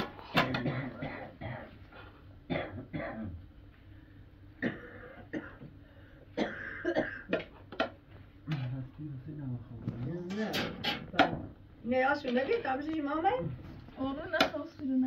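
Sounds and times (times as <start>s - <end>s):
person clearing throat: 0.3s - 1.8s, 2.5s - 3.4s, 4.6s - 5.8s, 6.4s - 7.6s
person coughing: 0.3s - 1.8s, 2.5s - 3.4s, 4.6s - 7.6s.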